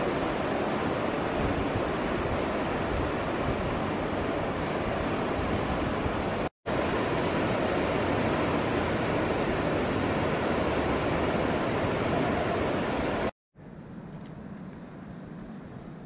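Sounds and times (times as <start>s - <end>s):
surf washing over rocks: 0.0s - 13.3s.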